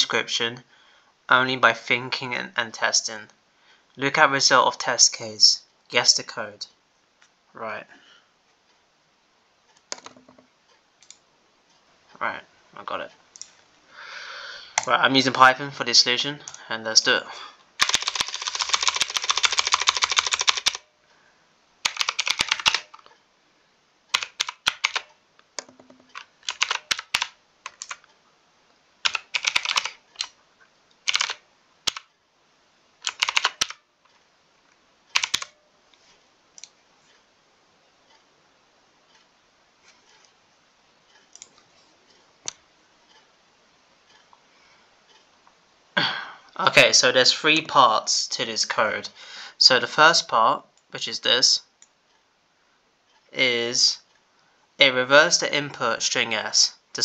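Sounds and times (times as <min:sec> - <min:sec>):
typing on computer keyboard: 0:09.8 - 0:10.4, 0:17.8 - 0:20.9, 0:21.8 - 0:23.1, 0:24.1 - 0:28.1, 0:29.0 - 0:30.4, 0:31.0 - 0:32.1, 0:33.0 - 0:33.8, 0:35.1 - 0:35.6.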